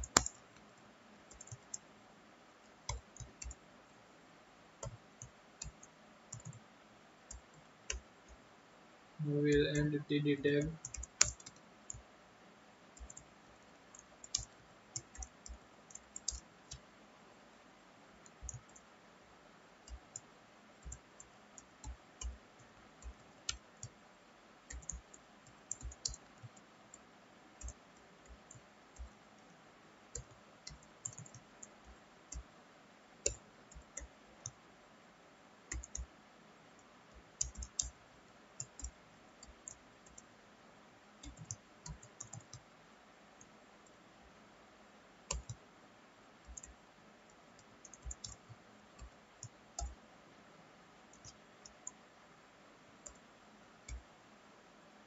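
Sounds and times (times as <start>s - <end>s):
computer keyboard typing: 0.0s - 0.7s, 1.3s - 1.9s, 2.8s - 3.7s, 4.8s - 6.6s, 7.3s - 8.4s, 9.3s - 12.0s, 13.0s - 16.9s, 18.2s - 18.9s, 19.8s - 24.0s, 24.7s - 27.0s, 27.6s - 32.5s, 33.2s - 34.6s, 35.7s - 36.1s, 37.1s - 38.0s, 38.6s - 40.3s, 41.2s - 42.6s, 45.3s - 45.6s, 46.4s - 46.8s, 47.6s - 50.0s, 51.1s - 52.0s, 53.0s - 53.2s, 53.9s - 54.1s.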